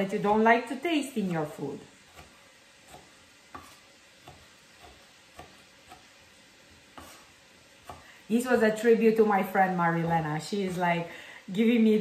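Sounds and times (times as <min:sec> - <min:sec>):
knife tapping on cutting board: 0:02.9 - 0:06.1, 0:07.8 - 0:08.1.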